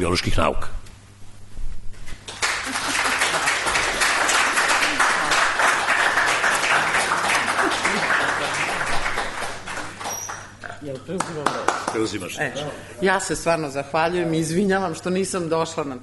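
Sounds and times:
audience applauding: 0:02.2 - 0:10.6, 0:11.2 - 0:12.2.

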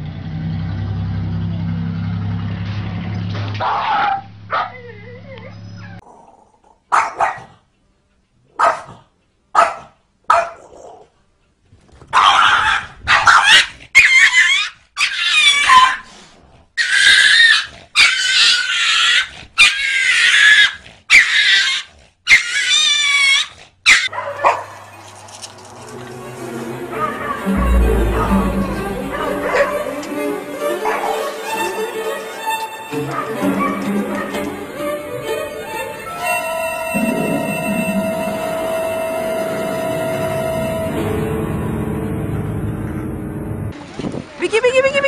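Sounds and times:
dog barking: 0:03.6 - 0:05.0, 0:06.9 - 0:07.6, 0:08.5 - 0:11.0, 0:12.1 - 0:16.1, 0:23.9 - 0:24.8, 0:33.0 - 0:34.5
animal cries: 0:16.8 - 0:24.1.

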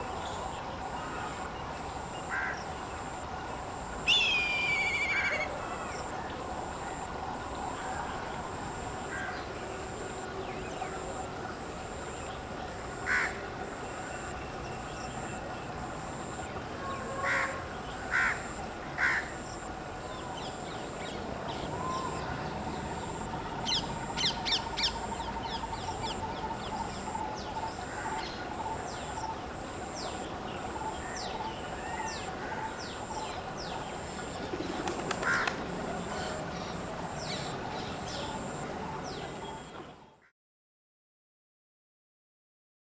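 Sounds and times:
crows cawing: 0:02.3 - 0:02.6, 0:13.1 - 0:13.4, 0:17.2 - 0:18.4, 0:19.0 - 0:19.3, 0:35.2 - 0:35.6.

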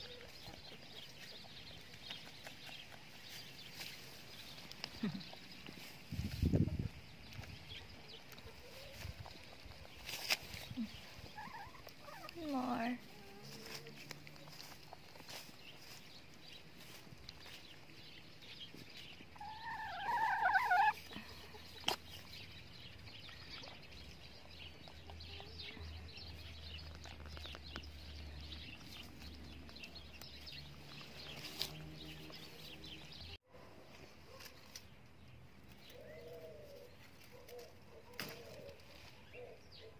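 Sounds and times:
low warbling bird calls: 0:08.6 - 0:13.8, 0:18.1 - 0:33.4
chicken squawk: 0:11.3 - 0:12.3, 0:19.4 - 0:21.1.

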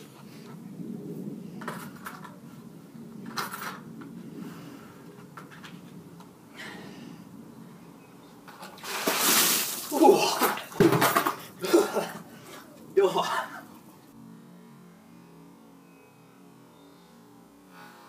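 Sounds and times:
ice rattling in bucket: 0:08.6 - 0:12.1.

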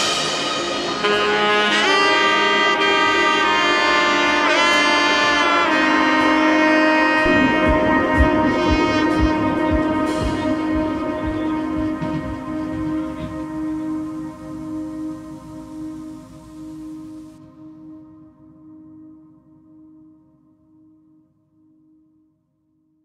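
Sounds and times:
sliding melody line: 0:07.1 - 0:17.1
soft steady beat: 0:07.2 - 0:16.0.

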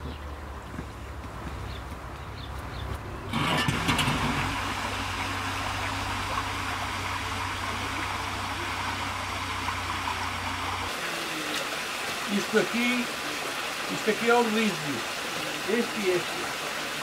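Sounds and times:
water rushing through sluice: 0:03.3 - 0:17.0.

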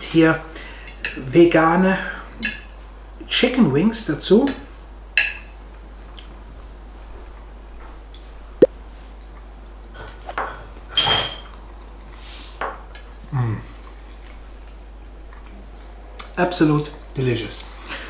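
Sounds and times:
cutlery clinking on a plate: 0:10.4 - 0:11.6.

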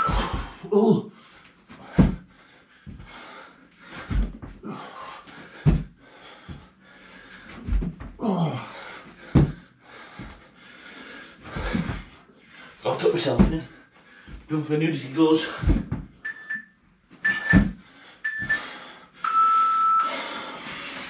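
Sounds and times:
body thumping on floor: 0:00.0 - 0:00.6, 0:01.8 - 0:02.2, 0:03.9 - 0:04.6, 0:05.5 - 0:06.7, 0:07.5 - 0:08.2, 0:09.2 - 0:10.4, 0:11.5 - 0:12.1, 0:13.3 - 0:13.7, 0:15.5 - 0:16.2, 0:17.3 - 0:17.8
man panting and grunting: 0:00.0 - 0:16.2, 0:20.0 - 0:21.0.

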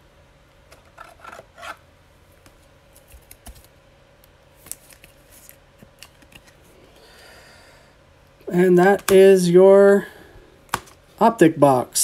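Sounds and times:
cards rustling in plastic sleeves: 0:02.4 - 0:07.0, 0:08.5 - 0:09.5.

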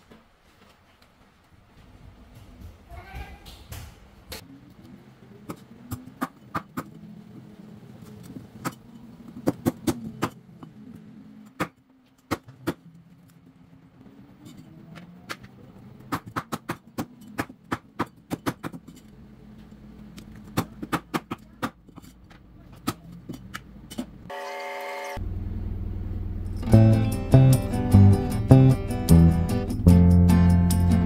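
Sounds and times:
steady low hum: 0:25.2 - 0:31.0.

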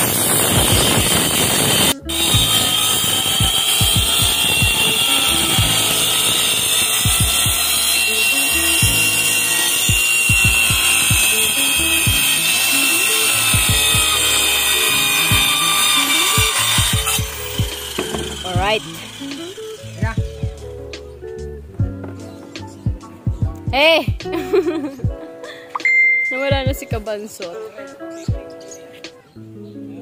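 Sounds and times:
circular saw cutting plywood: 0:00.0 - 0:20.6
background music with steady beat: 0:00.7 - 0:30.0.

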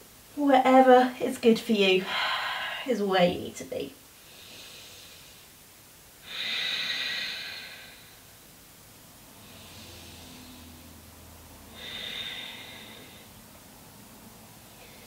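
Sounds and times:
woman breathing: 0:02.0 - 0:03.0, 0:04.1 - 0:05.6, 0:06.2 - 0:08.6, 0:09.2 - 0:13.7, 0:14.6 - 0:15.0.

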